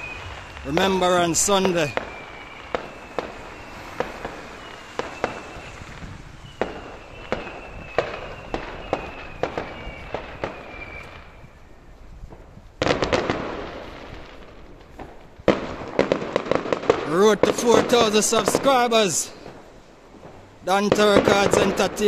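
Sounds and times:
faint high whistles: 0:00.0 - 0:00.6, 0:01.7 - 0:12.0
crackling firework bangs: 0:00.0 - 0:22.0
fireworks bangs: 0:00.0 - 0:22.0.

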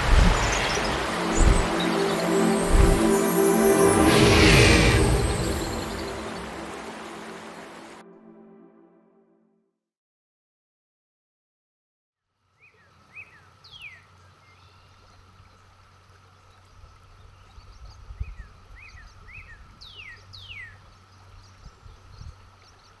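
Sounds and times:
birds chirping: 0:00.0 - 0:08.0
running water rumble: 0:00.0 - 0:08.0, 0:14.1 - 0:23.0.

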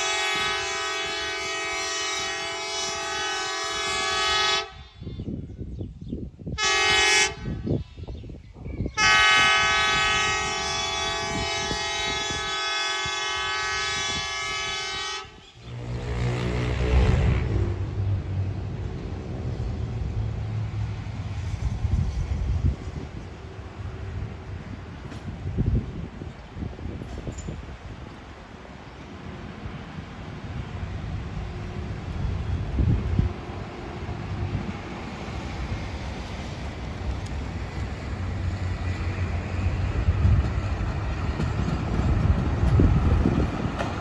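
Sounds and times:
rail car horn blasts: 0:00.0 - 0:05.1, 0:06.6 - 0:07.8, 0:08.9 - 0:18.4
wind noise on microphone: 0:00.0 - 0:44.0.

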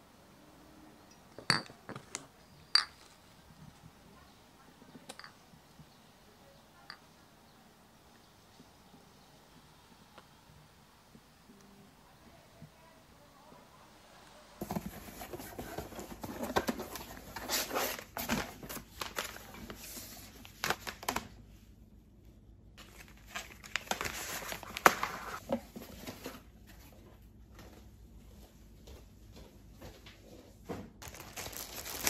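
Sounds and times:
packaging crinkling and rustling: 0:14.6 - 0:21.4, 0:22.8 - 0:26.5, 0:31.0 - 0:32.0.

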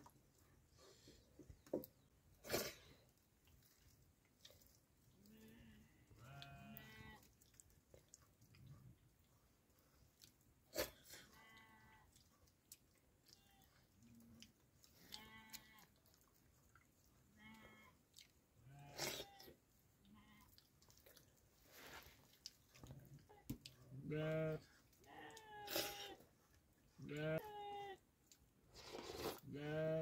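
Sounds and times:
faint sheep bleating: 0:05.2 - 0:07.2, 0:18.7 - 0:20.5, 0:24.0 - 0:26.2, 0:27.0 - 0:28.0, 0:29.5 - 0:30.0.

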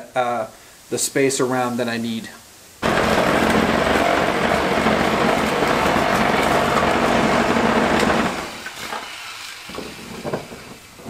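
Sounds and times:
power drill grinding with hole saw: 0:02.8 - 0:10.8.

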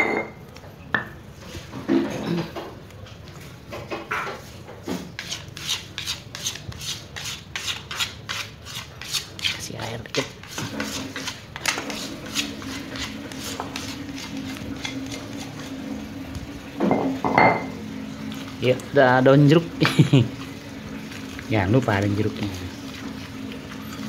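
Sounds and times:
spatula scraping stone mortar: 0:04.8 - 0:16.1.

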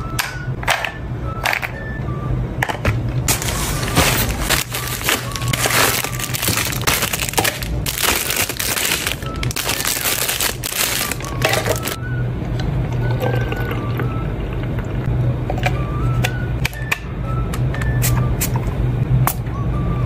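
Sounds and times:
plastic packaging crinkling: 0:03.3 - 0:12.0.

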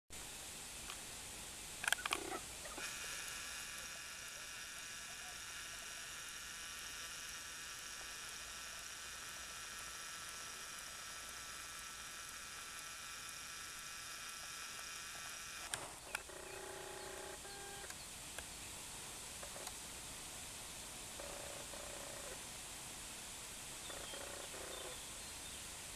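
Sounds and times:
faint hiss: 0:00.1 - 0:25.9
camcorder zoom motor whining: 0:01.8 - 0:18.0, 0:21.2 - 0:22.4, 0:23.9 - 0:25.0.

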